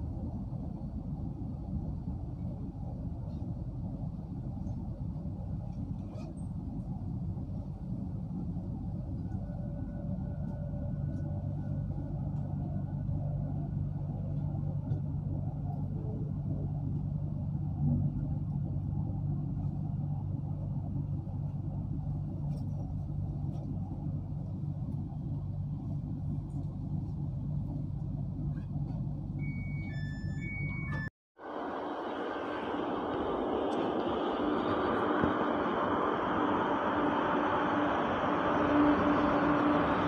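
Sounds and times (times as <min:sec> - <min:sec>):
train rumbling inside carriage: 0:00.0 - 0:40.0
short high tones: 0:29.4 - 0:31.1.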